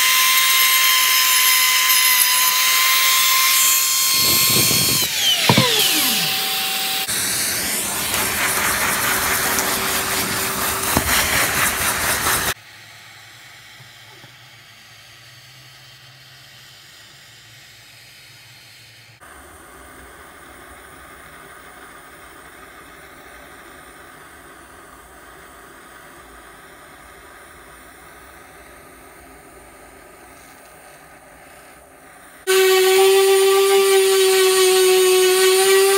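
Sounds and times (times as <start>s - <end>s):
router motor winding down: 0.0s - 12.6s, 32.5s - 35.9s
gas torch hissing: 1.1s - 35.9s.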